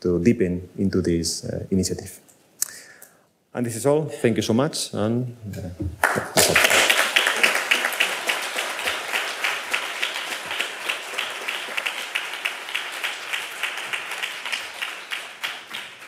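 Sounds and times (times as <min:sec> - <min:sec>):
audience applauding: 0:06.0 - 0:16.0.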